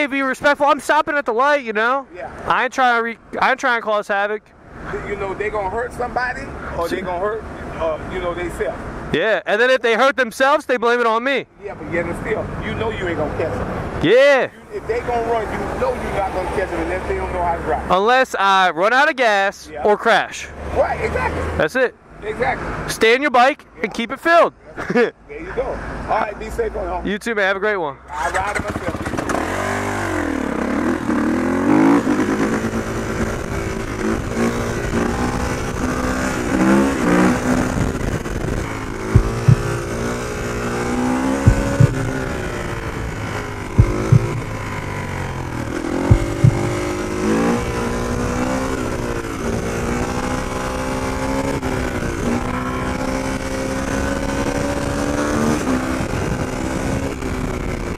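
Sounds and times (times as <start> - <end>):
dirt bike engine accelerating: 28.1 - 57.9
engine pops: 37.3 - 49.6.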